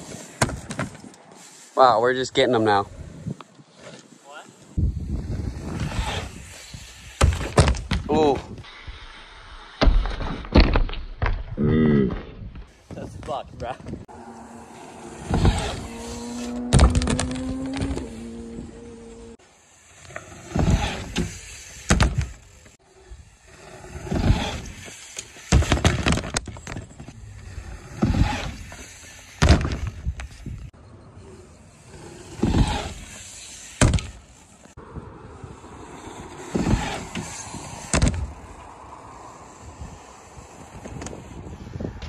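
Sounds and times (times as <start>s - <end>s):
bike thudding on landings: 0.0s - 1.1s, 5.0s - 8.6s, 15.1s - 19.4s, 20.0s - 22.8s, 23.8s - 30.7s, 31.8s - 34.7s, 35.9s - 38.6s
bike tyres rushing over dirt: 0.0s - 10.5s, 12.5s - 42.0s.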